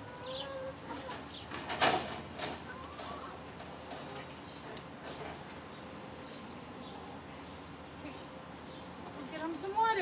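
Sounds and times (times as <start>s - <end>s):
hens clucking: 0.0s - 7.3s.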